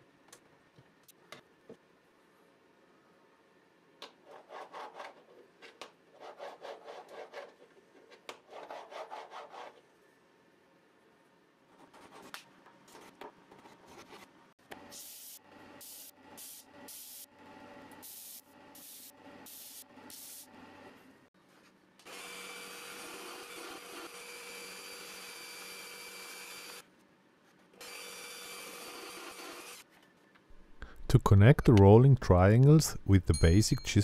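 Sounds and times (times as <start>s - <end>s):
power saw cutting plywood: 27.8s - 29.8s.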